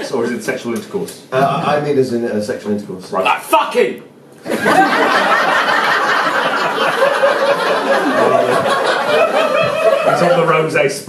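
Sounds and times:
audience laughter: 4.4 - 10.7.

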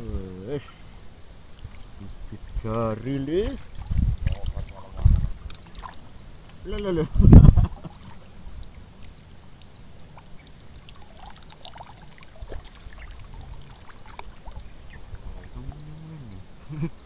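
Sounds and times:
water dripping: 0.0 - 16.0
faint ticks: 4.4 - 6.9
fish splashing at surface: 7.8 - 15.6.

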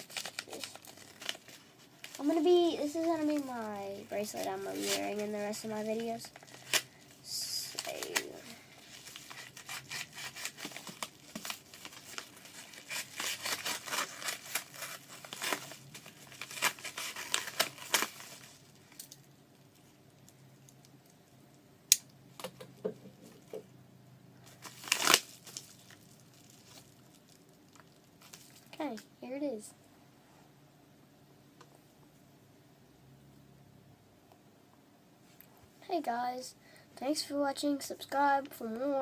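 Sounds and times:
envelope handling rustle: 0.0 - 19.0
knife ripping envelope: 7.7 - 18.6, 24.6 - 25.7.

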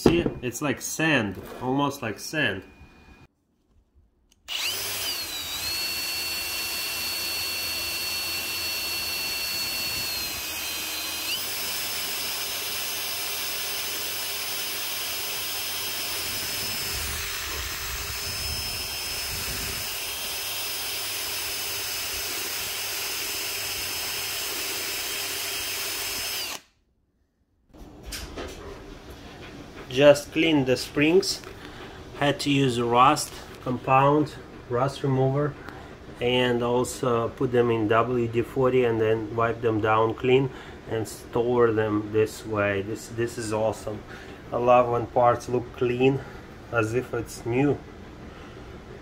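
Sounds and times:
cordless drill motor whining: 4.4 - 26.7.

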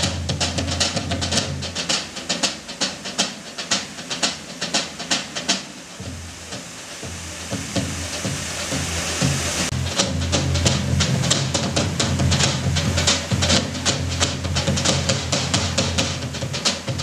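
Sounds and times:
drums struck with sticks: 0.0 - 17.0
steady hiss: 0.0 - 17.0.

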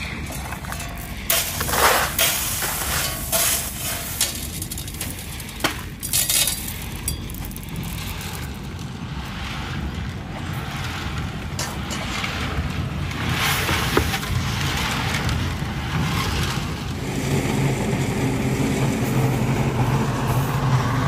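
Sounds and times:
gravel rattling into plastic pan: 0.0 - 8.9.

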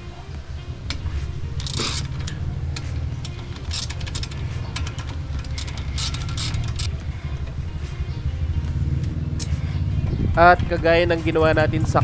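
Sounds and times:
music with heavy bass beat: 0.0 - 12.0
ratchet wrench clicking: 0.9 - 7.1.

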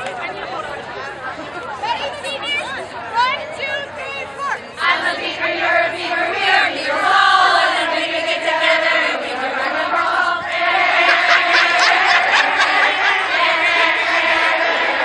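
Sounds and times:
women chanting and singing: 2.0 - 15.0
group shouting and cheering: 10.4 - 15.0.

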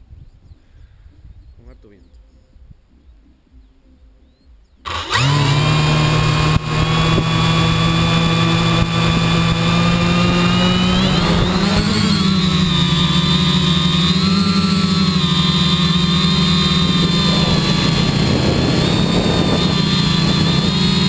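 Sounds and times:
quadcopter motors and propellers: 4.9 - 21.0.

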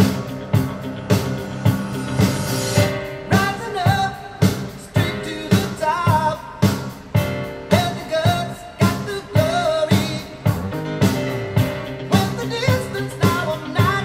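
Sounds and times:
rock song through speakers: 0.0 - 14.0
person singing: 2.8 - 6.9, 7.5 - 10.9, 11.8 - 14.0.

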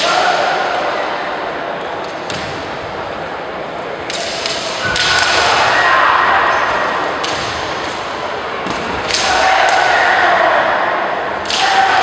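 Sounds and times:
bamboo swords clacking: 4.0 - 5.6, 7.2 - 9.9, 11.4 - 12.0.

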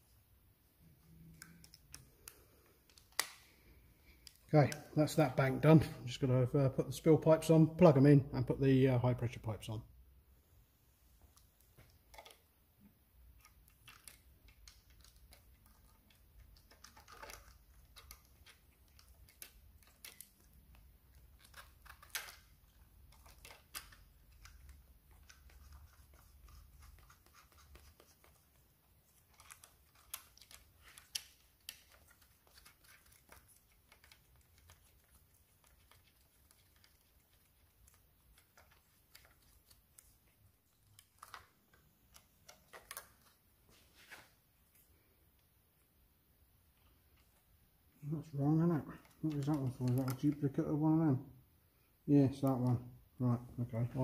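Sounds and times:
small parts clicking and scraping: 13.2 - 43.4.

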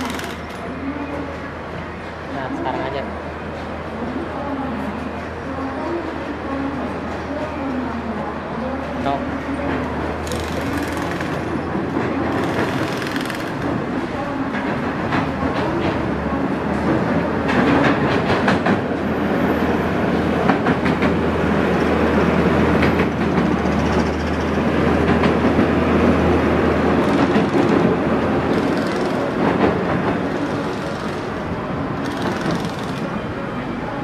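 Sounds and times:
train rolling slowly on rails: 0.0 - 34.0
clanks and rattles of wagons: 9.6 - 21.3, 22.7 - 33.1.

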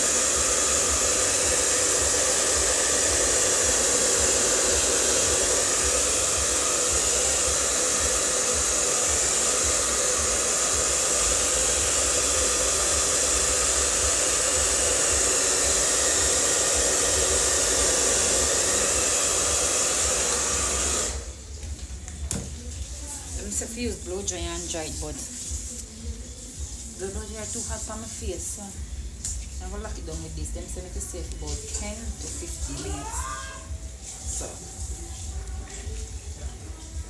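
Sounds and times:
hair dryer blowing: 0.0 - 21.4, 27.0 - 35.2.

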